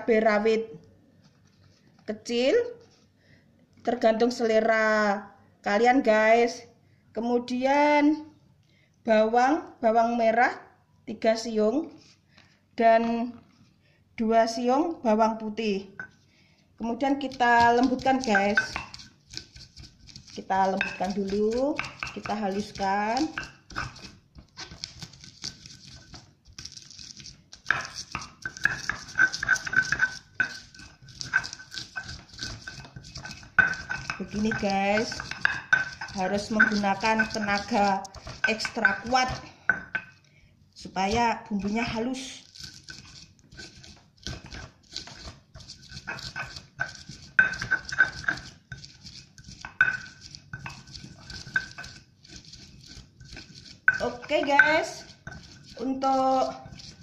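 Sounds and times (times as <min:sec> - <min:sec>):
stone pestle grinding in mortar: 0:17.0 - 0:40.2, 0:40.8 - 0:57.0.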